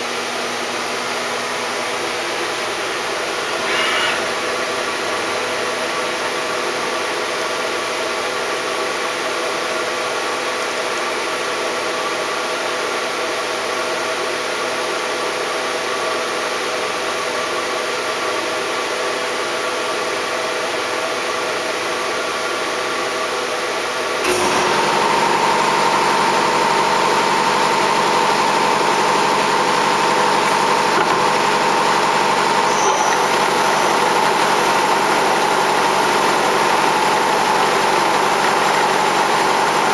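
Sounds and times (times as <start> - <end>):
machining center motors humming: 0.0 - 7.8, 23.9 - 39.9.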